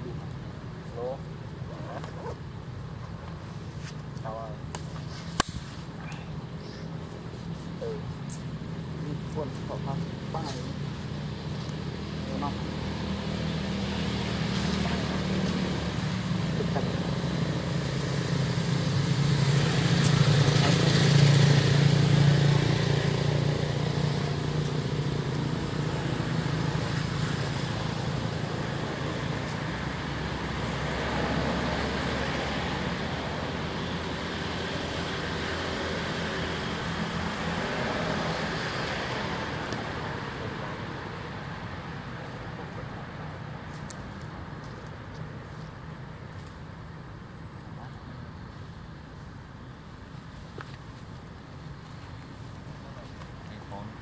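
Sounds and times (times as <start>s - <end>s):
vehicle engine humming: 0.0s - 54.0s.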